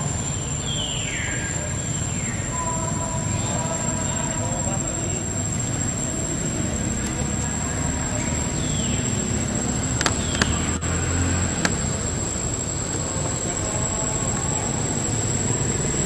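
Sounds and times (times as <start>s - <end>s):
high-pitched whine: 0.0s - 16.0s
outdoor background noise: 0.0s - 16.0s
sharp clicks: 9.9s - 10.8s.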